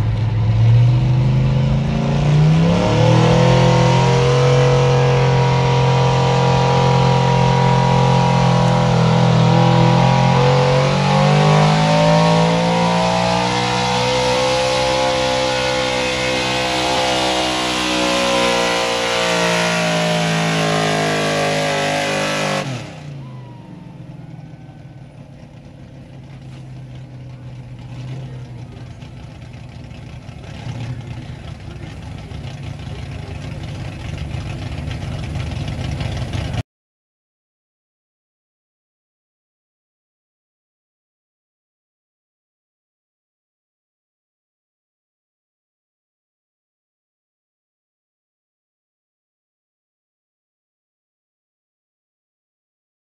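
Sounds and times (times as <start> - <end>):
pickup engine revving under load: 0.0 - 36.6.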